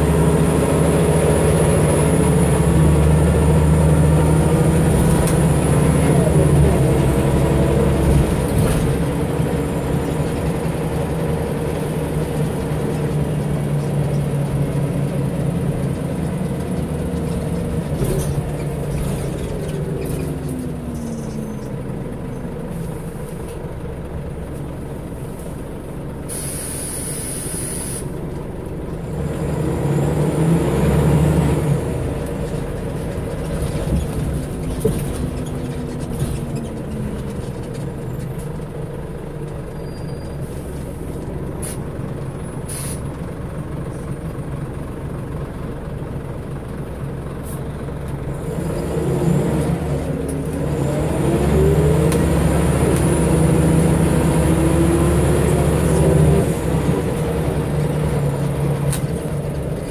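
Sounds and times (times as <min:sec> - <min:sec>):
bus diesel engine running: 0:00.0 - 0:59.9
air hiss: 0:26.3 - 0:28.1, 0:42.7 - 0:43.0.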